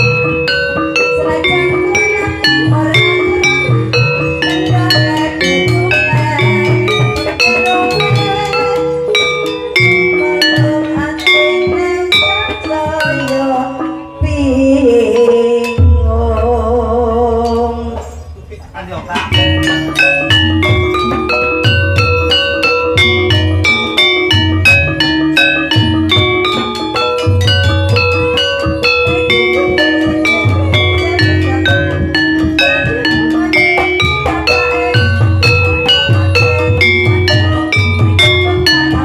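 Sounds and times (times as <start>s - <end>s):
held wavering melody line: 0.0s - 18.3s, 19.3s - 39.0s
metallophone and gong tones: 0.0s - 18.3s, 19.2s - 39.0s
drum strokes: 0.0s - 39.0s.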